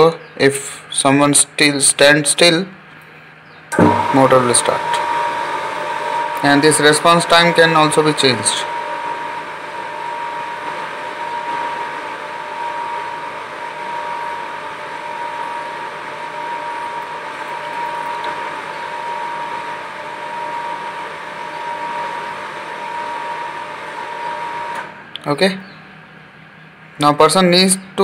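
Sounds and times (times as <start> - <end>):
small electric motor whining: 3.8 - 24.9.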